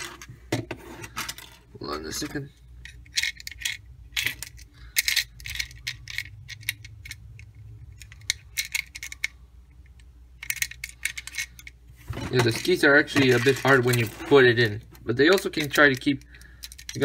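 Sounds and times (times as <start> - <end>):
plastic toy bricks clicking: 2.8 - 9.3, 9.9 - 11.8, 15.4 - 17.0.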